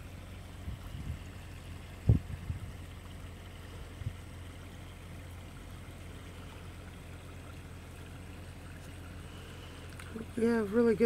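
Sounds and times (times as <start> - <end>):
rain falling on water: 0.0 - 11.0.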